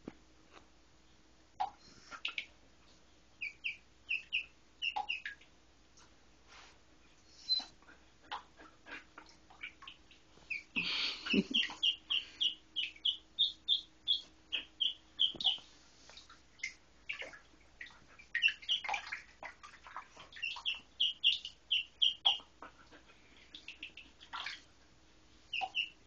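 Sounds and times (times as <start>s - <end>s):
duckling peeping: 1.6s - 2.5s, 3.4s - 5.4s, 7.3s - 7.7s, 9.5s - 24.6s, 25.5s - 26.0s.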